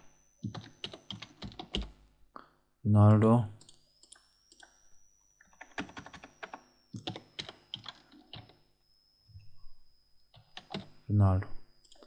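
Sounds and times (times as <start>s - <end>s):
keyboard typing: 0.4s - 2.0s, 5.4s - 8.6s, 10.3s - 11.0s, 11.8s - 12.0s.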